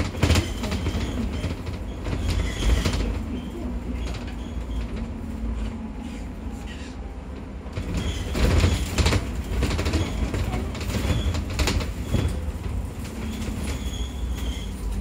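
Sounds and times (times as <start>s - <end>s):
cabin rattles: 0.0s - 5.2s, 7.4s - 15.0s
bus engine rumble: 0.0s - 15.0s
road noise: 0.0s - 15.0s.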